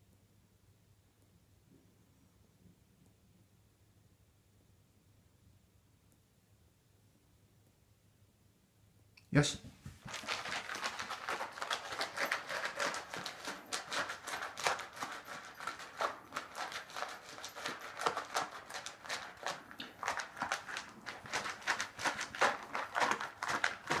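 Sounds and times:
dog crunching dry kibble: 0:10.0 - 0:24.0.

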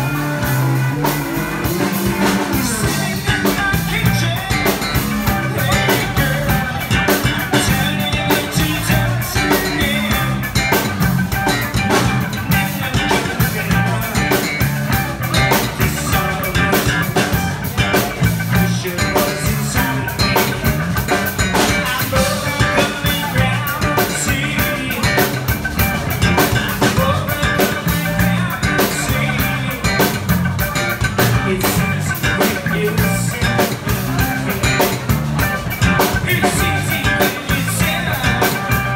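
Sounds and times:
drum kit beat: 0:00.0 - 0:38.9
electric guitars: 0:00.0 - 0:38.9
person singing: 0:00.0 - 0:38.9.

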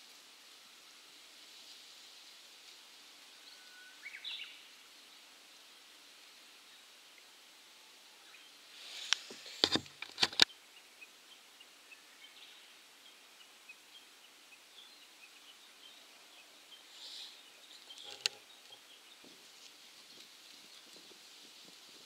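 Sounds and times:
sharp clicks: 0:09.1 - 0:10.5, 0:18.0 - 0:18.4.

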